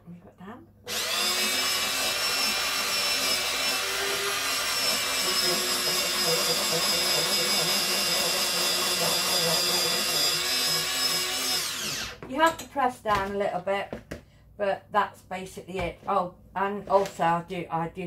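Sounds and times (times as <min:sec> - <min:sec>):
electric grater motor whine: 0:00.9 - 0:12.2.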